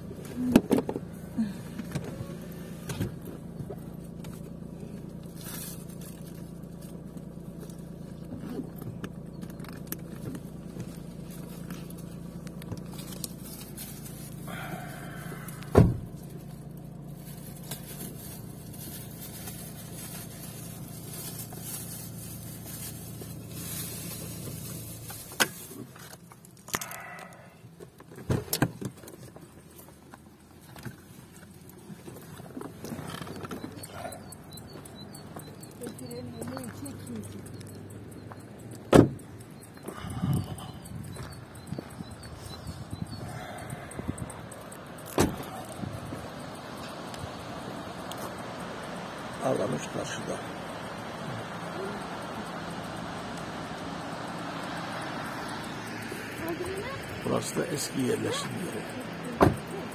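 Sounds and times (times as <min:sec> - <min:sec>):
car engine and road hum: 0:00.0 - 0:59.9
knocks and rattles in car: 0:00.3 - 0:04.4, 0:15.5 - 0:16.6, 0:27.9 - 0:29.6, 0:38.7 - 0:42.2, 0:59.3 - 0:59.9
sharp thump: 0:15.7 - 0:16.1.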